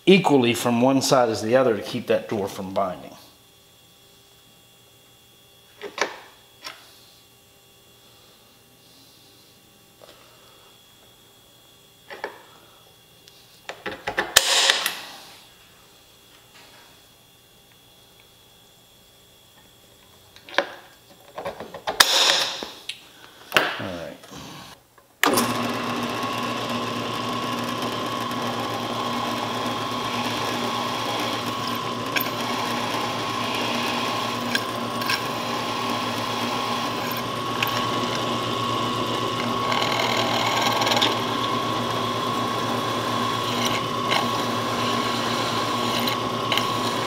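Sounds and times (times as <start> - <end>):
drill press drilling metal: 25.2 - 47.0.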